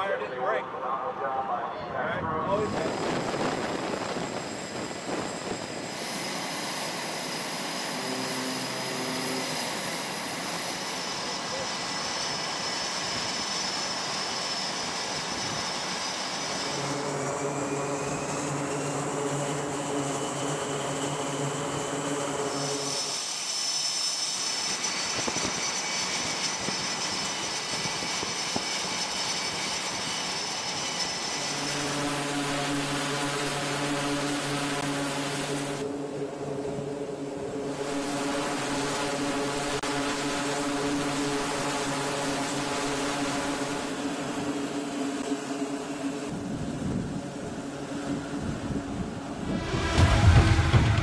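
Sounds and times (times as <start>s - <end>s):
jet engines running: 0.0s - 51.0s
high thin whine: 49.0s - 51.0s.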